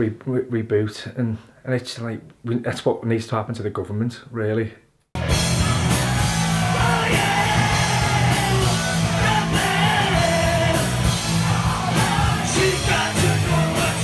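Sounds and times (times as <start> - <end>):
live rock band playing: 5.2 - 14.0
crowd singing and shouting: 5.5 - 14.0
lead singer singing: 6.5 - 14.0.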